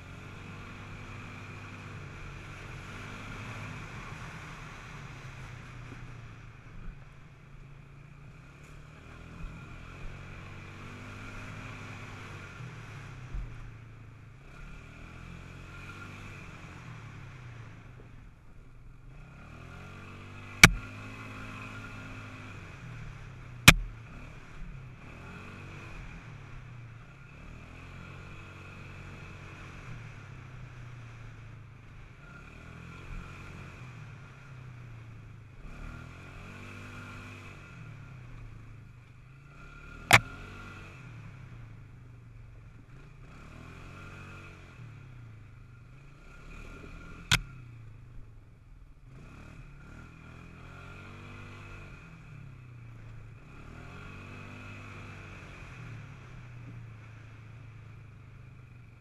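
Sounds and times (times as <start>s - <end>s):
sharp knocks: 20.6s - 20.8s.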